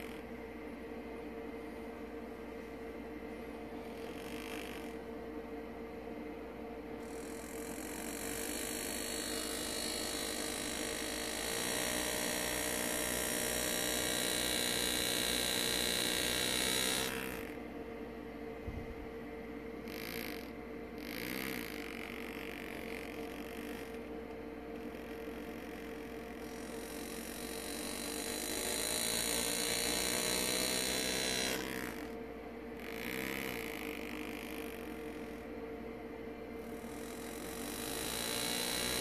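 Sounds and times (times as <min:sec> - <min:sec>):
engraving tool buzzing: 0:00.0 - 0:00.4, 0:03.4 - 0:05.2, 0:06.9 - 0:17.6, 0:19.8 - 0:35.6, 0:36.5 - 0:39.0
steady hum: 0:00.0 - 0:39.0.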